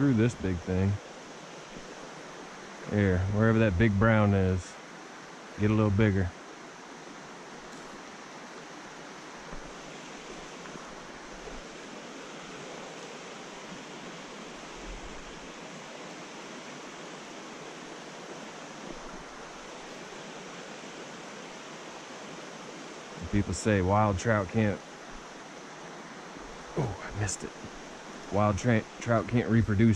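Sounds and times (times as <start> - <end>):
stream flowing over rocks: 0.0 - 29.9.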